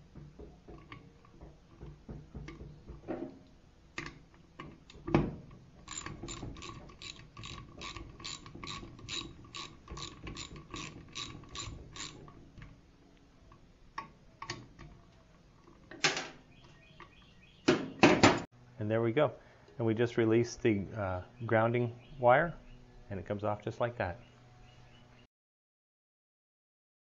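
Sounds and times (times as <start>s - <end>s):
ratchet wrench clicking: 5.8s - 12.2s.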